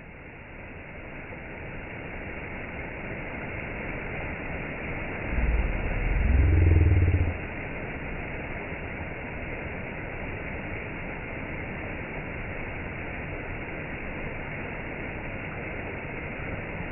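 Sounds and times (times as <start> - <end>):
low rumble with rising tone: 5.0 - 8.7.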